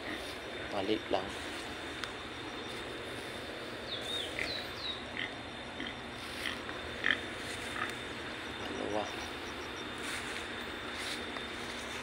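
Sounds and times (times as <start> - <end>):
steady background hiss: 0.0 - 12.0
high chirping animal calls: 3.8 - 6.1.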